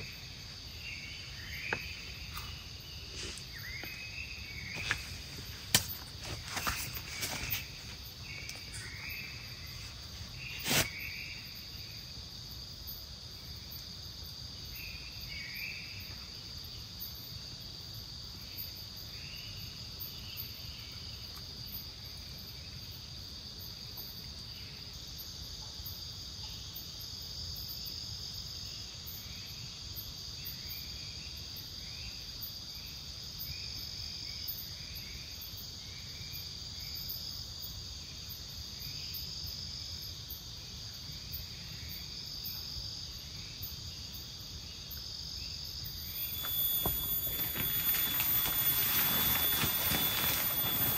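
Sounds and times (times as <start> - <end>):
insects trilling: 0.0 - 50.9
low steady hiss: 0.0 - 50.9
short chirping calls: 46.0 - 50.9.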